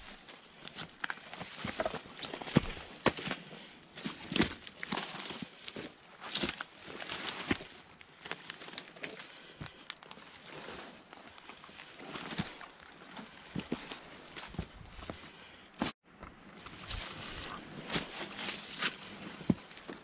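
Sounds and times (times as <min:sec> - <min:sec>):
footsteps on loose stones: 0:00.0 - 0:20.0
brush rustling: 0:16.6 - 0:20.0.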